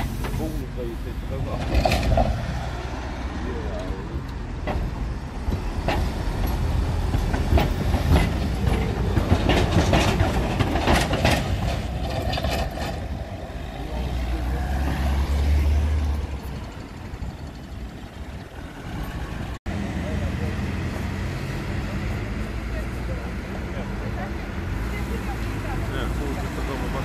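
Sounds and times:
car engine rumble: 0:00.0 - 0:27.0
tram wheels clattering over rails: 0:01.3 - 0:03.0, 0:03.7 - 0:20.2.

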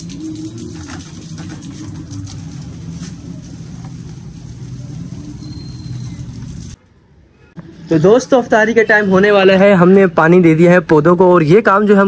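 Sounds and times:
water spraying from garden hose: 0:00.0 - 0:06.8.

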